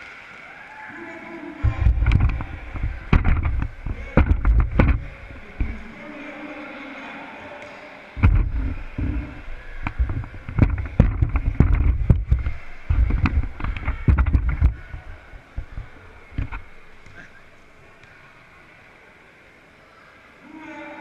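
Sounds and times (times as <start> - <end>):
camera handling rumble: 1.7 - 5.8, 8.2 - 17.1.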